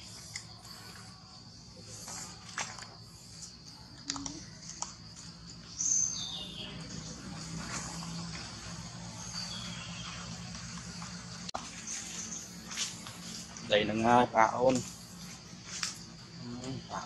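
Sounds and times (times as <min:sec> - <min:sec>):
insect buzzing: 0:11.0 - 0:17.0.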